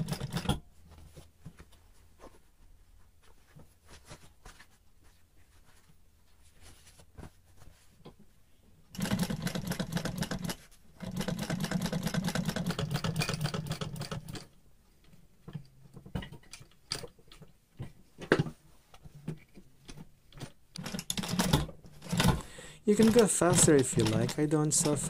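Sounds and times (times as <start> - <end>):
sewing machine stitching: 0.0 - 0.6, 8.9 - 14.6, 20.8 - 25.0.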